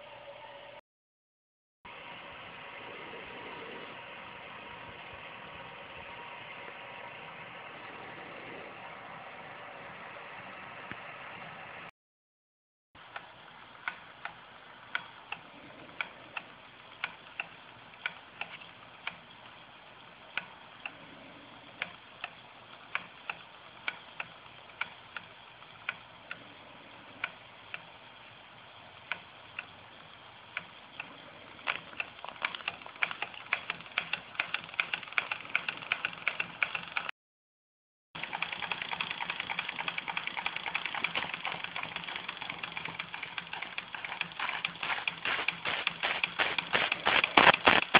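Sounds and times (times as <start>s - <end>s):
steam engine mechanical clicks: 30.5s - 37.1s, 38.2s - 47.9s
steam hissing: 44.8s - 47.9s.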